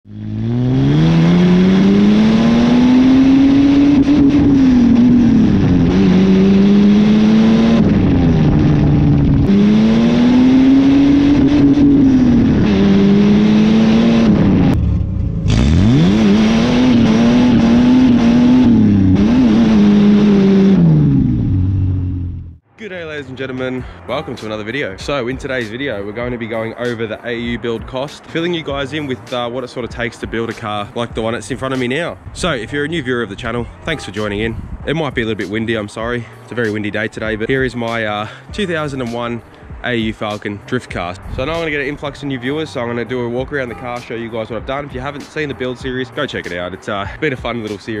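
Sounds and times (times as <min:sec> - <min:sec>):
car engine accelerating: 0:00.0 - 0:22.6
road noise: 0:00.0 - 0:48.0.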